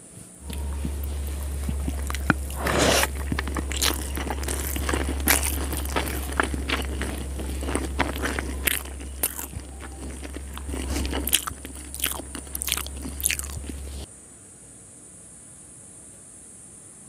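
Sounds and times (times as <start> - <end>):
steady low hum: 0.0 - 14.1
close chewing with mouth clicks: 0.4 - 14.1.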